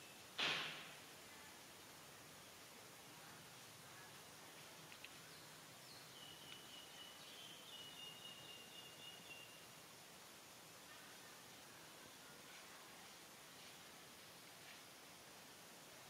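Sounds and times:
faint outdoor ambience: 0:00.0 - 0:16.0
tiny clicks: 0:04.8 - 0:05.2.

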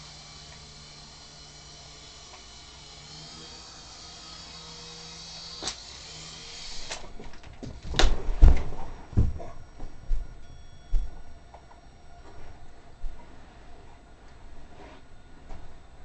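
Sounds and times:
toy helicopter rotor whining: 0:00.0 - 0:08.0
heavy thuds on floor: 0:07.6 - 0:09.5.

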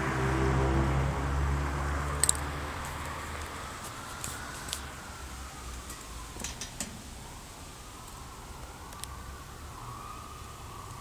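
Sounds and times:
rain hiss: 0:02.4 - 0:11.0
faint emergency siren wailing: 0:02.7 - 0:11.0.

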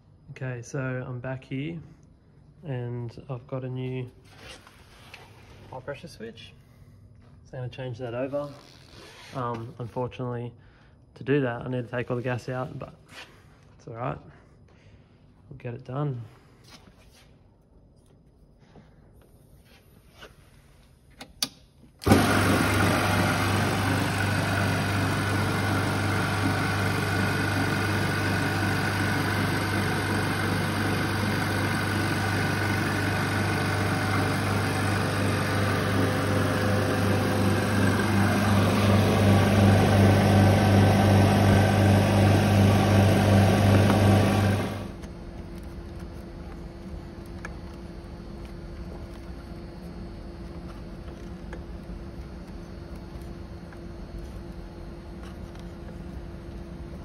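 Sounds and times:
machine running with mains hum: 0:22.0 - 0:57.0.

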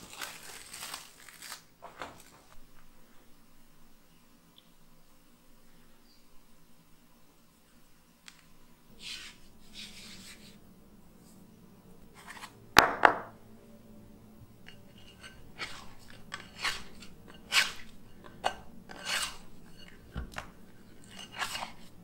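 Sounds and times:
dough rustling and scraping: 0:00.0 - 0:02.6, 0:08.3 - 0:10.6, 0:12.1 - 0:12.6, 0:14.6 - 0:22.0
dough scraper on glass bowl: 0:14.7 - 0:22.0.

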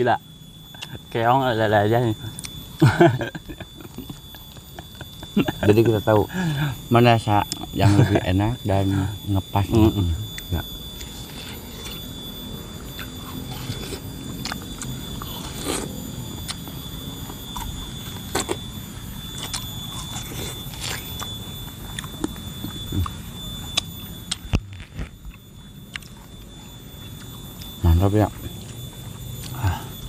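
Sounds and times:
watermelon crunching and slurping: 0:13.0 - 0:18.7, 0:19.3 - 0:21.3.

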